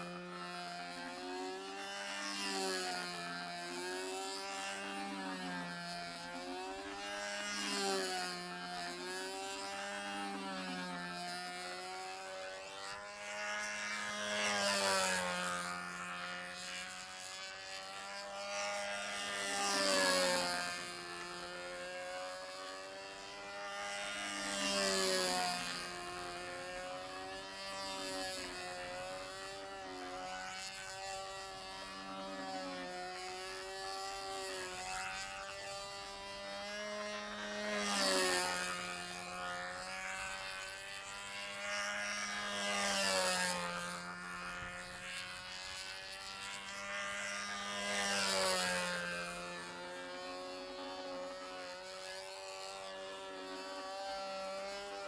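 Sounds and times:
model airplane engine buzzing: 0.0s - 55.0s.

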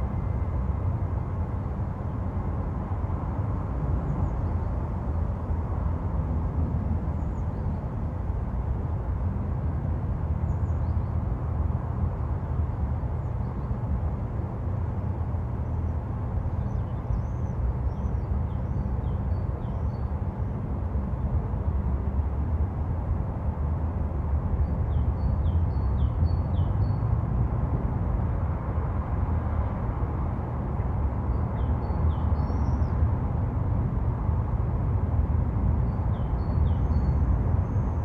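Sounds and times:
road traffic rumble: 0.0s - 38.0s.

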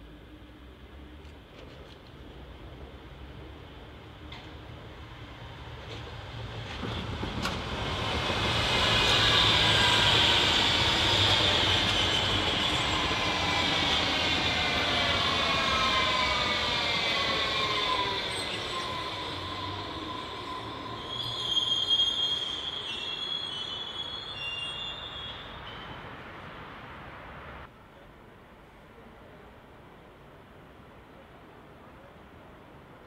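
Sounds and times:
train passing on viaduct: 0.0s - 33.0s
train whine: 3.3s - 26.1s.

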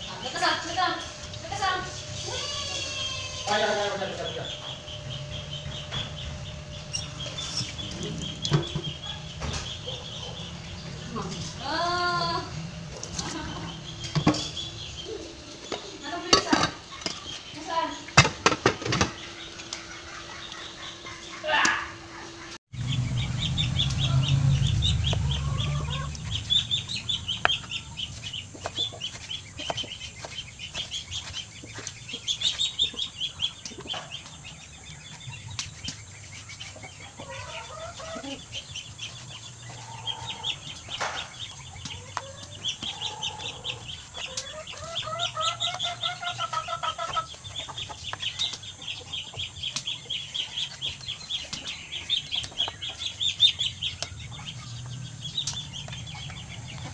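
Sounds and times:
low rumble: 0.0s - 17.0s, 22.1s - 30.6s, 50.8s - 56.9s
chickens clucking: 0.0s - 56.9s.

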